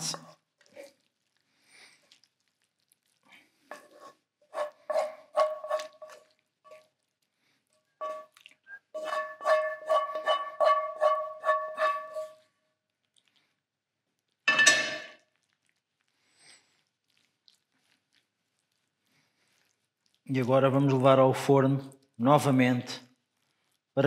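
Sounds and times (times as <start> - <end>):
knife and spoon scraping a pan: 3.7 - 6.9, 8.0 - 12.4.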